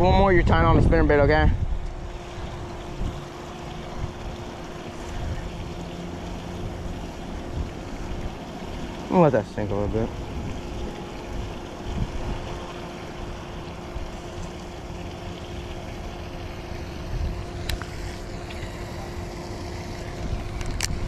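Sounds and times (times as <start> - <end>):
wind buffeting microphone: 0.0 - 5.7, 9.7 - 14.1, 16.9 - 17.8
low hum: 0.0 - 21.0.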